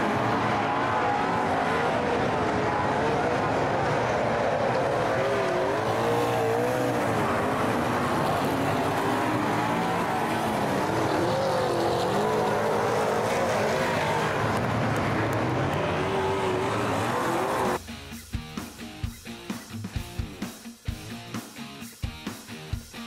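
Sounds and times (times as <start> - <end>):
race car engines revving: 0.0 - 17.8.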